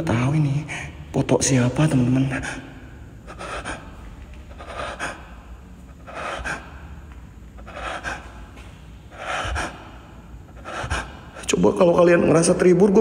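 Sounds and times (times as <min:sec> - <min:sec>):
man breathing heavily: 0:02.3 - 0:11.6.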